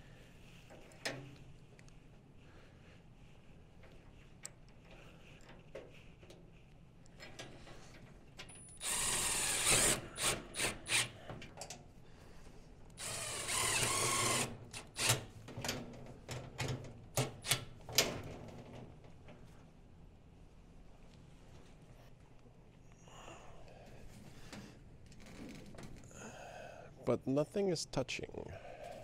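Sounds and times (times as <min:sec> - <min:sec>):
cordless drill whining: 0:08.8 - 0:11.2, 0:13.0 - 0:15.1
short drill trigger bursts: 0:08.8 - 0:11.2, 0:13.0 - 0:15.1.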